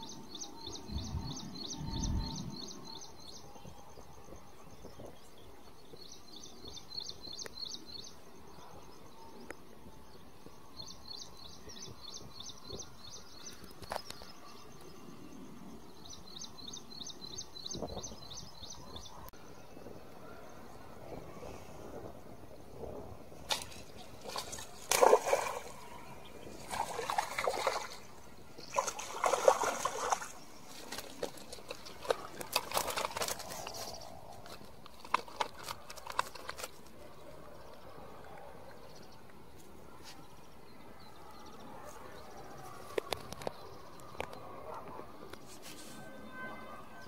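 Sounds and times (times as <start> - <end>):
fish splashing at water surface: 23.5 - 25.9, 26.6 - 33.6.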